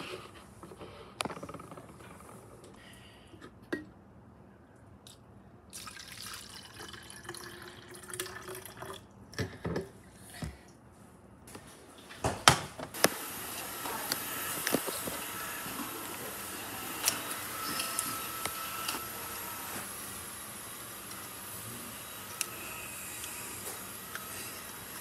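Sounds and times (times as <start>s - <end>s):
water pouring into bottle: 5.7s - 9.0s.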